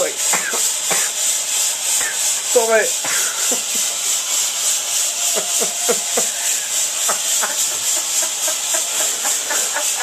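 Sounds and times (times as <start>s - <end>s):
smoke machine hissing: 0.0s - 10.0s.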